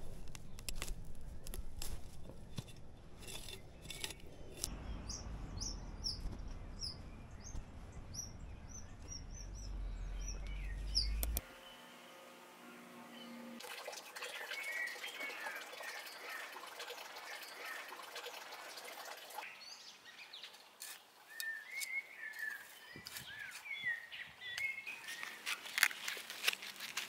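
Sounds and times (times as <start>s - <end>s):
trowel scraping garden soil: 0.0s - 4.7s
birds chirping: 0.0s - 25.7s.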